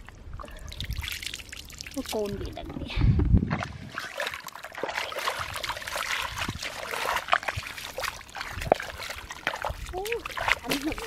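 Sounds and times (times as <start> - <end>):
muddy water splashing and trickling: 0.0 - 11.0.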